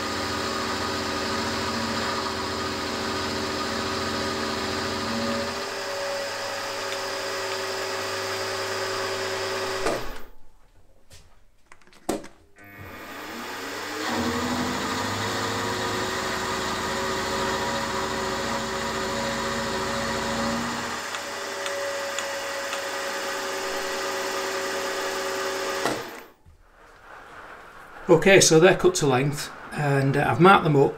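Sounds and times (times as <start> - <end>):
milling machine cutting steel: 0.0 - 10.1, 12.6 - 26.3.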